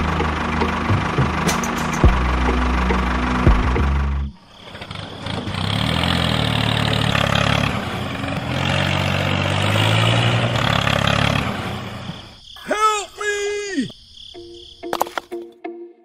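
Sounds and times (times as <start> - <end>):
tractor engine revving: 0.0 - 12.4.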